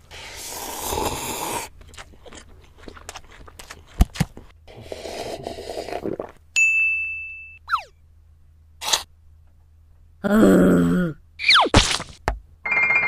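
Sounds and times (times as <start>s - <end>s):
bright ding: 6.6s - 7.7s.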